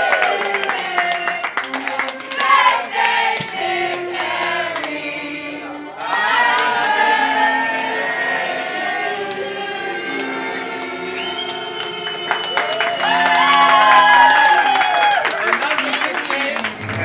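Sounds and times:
group of voices singing: 0.0 - 14.0
scattered claps: 10.2 - 17.0.

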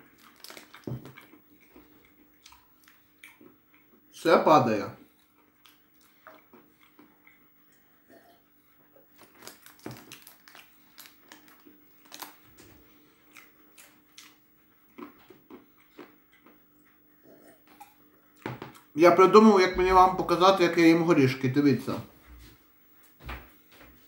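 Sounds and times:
peanuts being chewed: 0.0 - 4.0, 5.0 - 8.0, 9.0 - 19.0.

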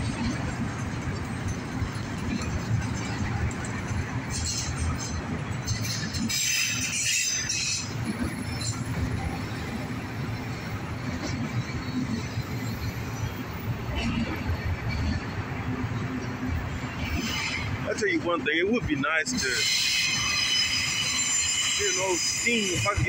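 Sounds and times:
freight cars rumbling on rails: 0.0 - 23.0
high-pitched wheel screech: 19.4 - 23.0.

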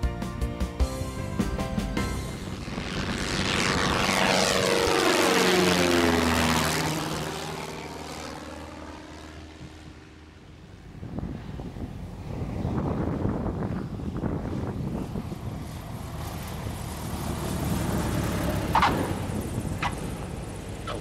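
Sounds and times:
propeller plane passing overhead: 0.0 - 21.0.

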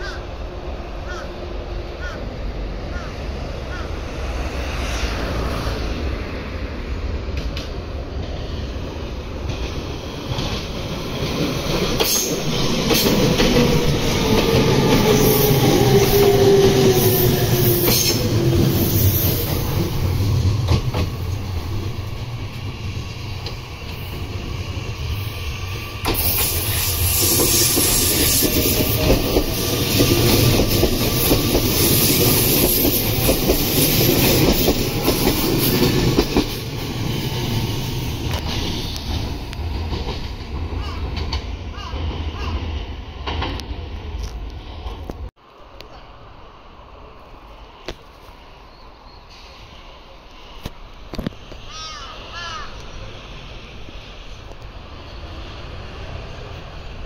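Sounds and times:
train wheels clattering: 9.4 - 24.2, 26.0 - 42.5.

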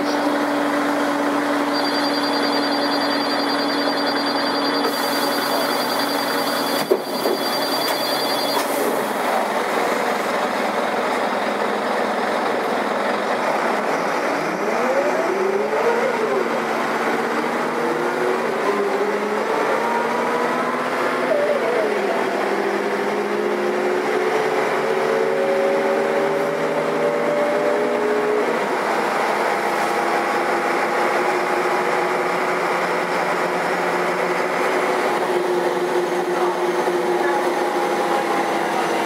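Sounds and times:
bus diesel engine running: 0.0 - 39.0
high ringing tone: 1.2 - 9.2.

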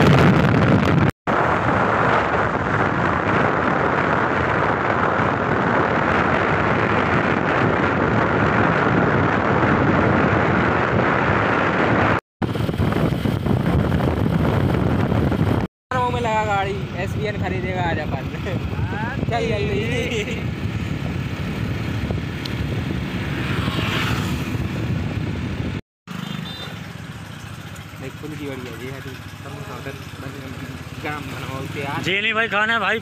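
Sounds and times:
wind rushing over microphone: 0.0 - 25.8.

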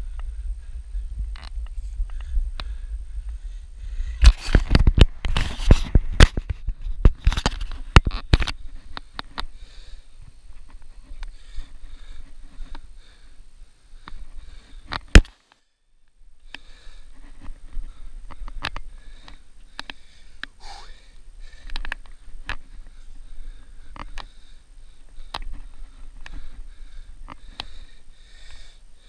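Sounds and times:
person breathing: 0.0 - 5.0, 8.4 - 29.0
wind rumble on microphone: 0.0 - 9.0.

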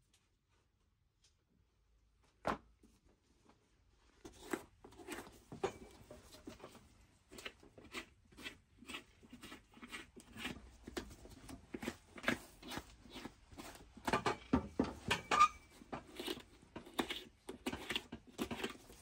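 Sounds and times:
knife cutting rubber sole: 7.3 - 13.9, 15.4 - 19.0.

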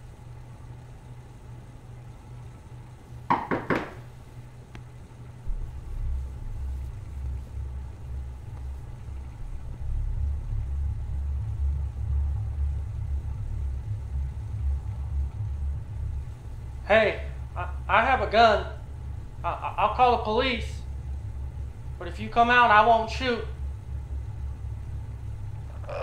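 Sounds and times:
low pulsing rumble: 0.0 - 3.3, 4.0 - 26.0
knocks on wooden door: 3.3 - 4.0.

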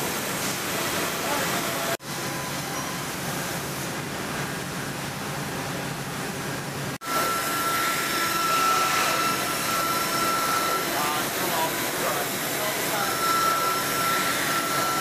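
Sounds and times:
woodworking machinery noise: 0.0 - 15.0
router high whine: 7.0 - 15.0.

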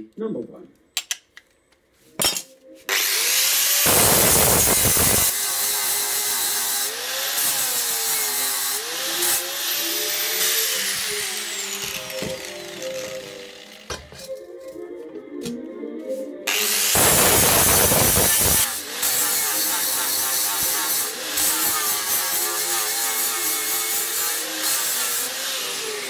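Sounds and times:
angle grinder cutting steel: 2.9 - 14.1, 16.5 - 26.0.

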